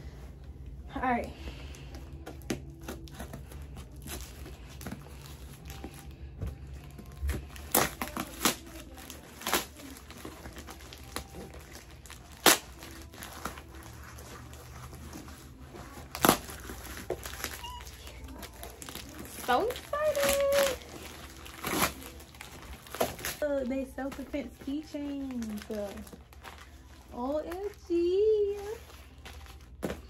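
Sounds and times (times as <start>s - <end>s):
packaging crinkling: 1.6s - 30.0s
package being torn open: 7.1s - 14.8s, 16.0s - 23.4s
sharp paper rips: 18.2s - 23.4s.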